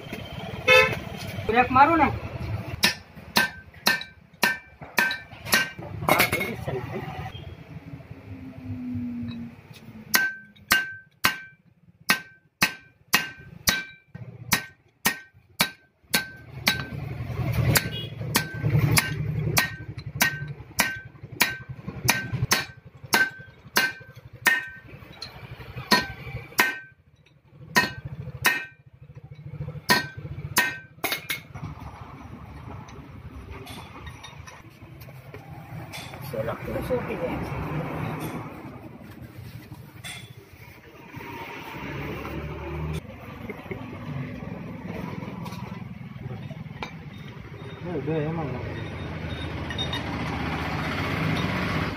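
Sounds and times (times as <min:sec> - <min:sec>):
hammer striking steel: 0:02.7 - 0:06.5, 0:09.3 - 0:31.6.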